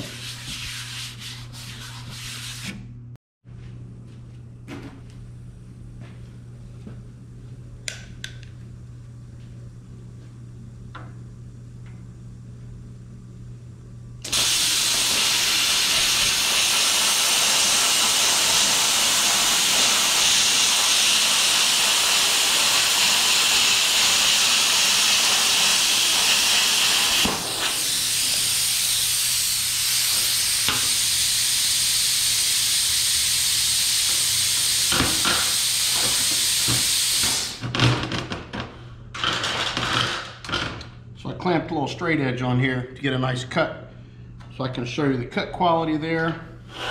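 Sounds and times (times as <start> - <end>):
low machine hum: 0.0 - 16.6, 40.3 - 46.9
plasma arc hissing: 14.3 - 37.6
torch cooling air hiss: 14.3 - 37.6.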